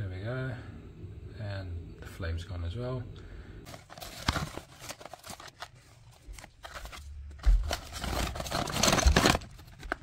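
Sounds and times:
cardboard box being opened: 3.7s - 5.7s, 6.3s - 10.0s.

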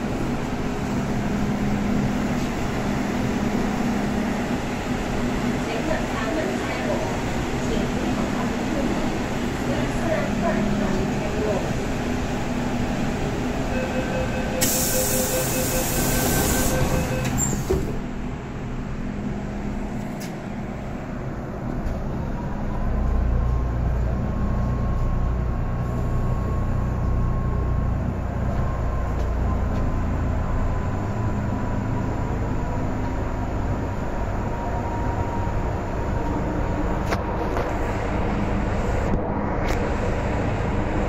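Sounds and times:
train running rumble: 0.0s - 41.0s
warning tone with hiss: 13.8s - 17.6s
train doors shutting thud: 14.6s - 18.0s.

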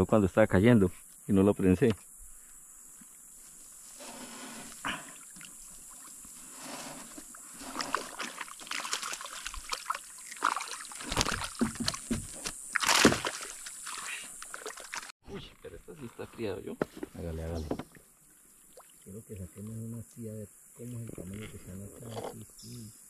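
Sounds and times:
water splashing around boat: 5.2s - 15.1s.

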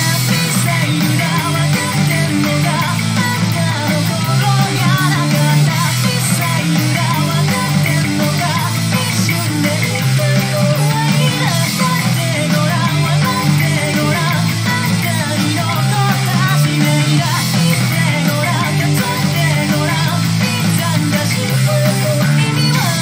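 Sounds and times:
electric bass line: 0.0s - 23.0s
heavy rock music: 0.0s - 23.0s.

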